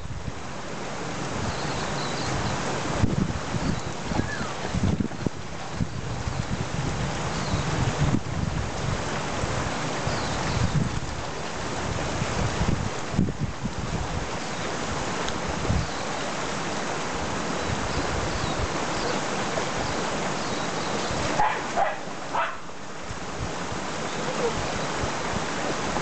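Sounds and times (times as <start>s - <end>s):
river rushing: 0.0s - 26.0s
dogs wading through water: 14.2s - 26.0s
dog barking: 21.4s - 22.7s.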